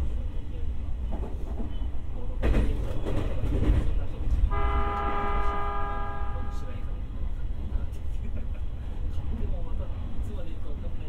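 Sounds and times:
train low rumble: 0:00.0 - 0:11.0
steady horn-like tone: 0:04.5 - 0:06.8.

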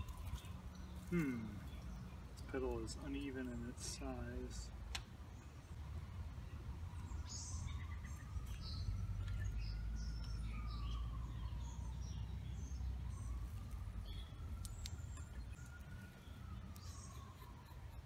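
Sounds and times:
faint siren wailing: 0:00.0 - 0:01.6, 0:05.7 - 0:18.0
birds chirping: 0:00.0 - 0:18.0.

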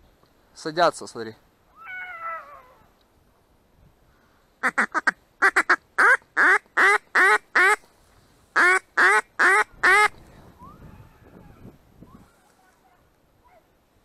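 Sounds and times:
duck quacking: 0:04.6 - 0:07.8.

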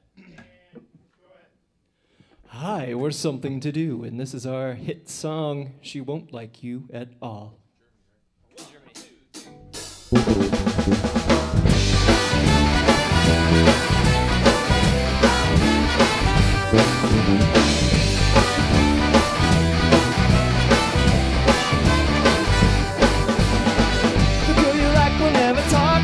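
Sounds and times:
drum kit: 0:08.6 - 0:26.0
bass guitar: 0:09.6 - 0:26.0
trombone: 0:10.1 - 0:24.7
trumpet: 0:10.1 - 0:25.5
electric guitar: 0:10.1 - 0:26.0.

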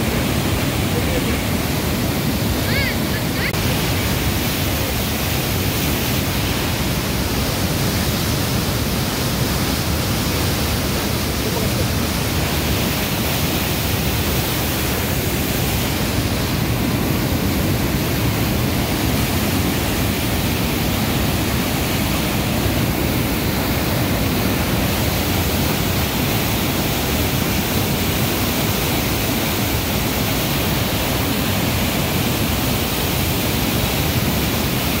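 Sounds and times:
water rushing over weir: 0:00.0 - 0:35.0.

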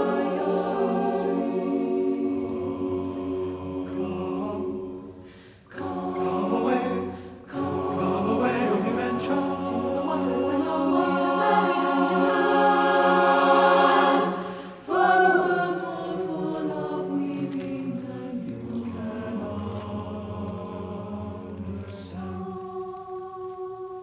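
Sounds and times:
choir singing a sustained chord: 0:00.0 - 0:24.0.

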